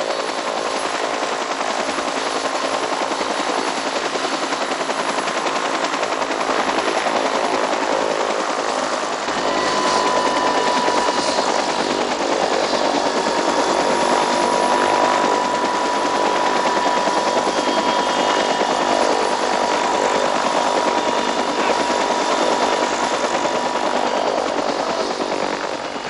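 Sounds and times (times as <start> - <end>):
helicopter rotor chopping: 0.0 - 26.0
high whine: 8.8 - 26.0.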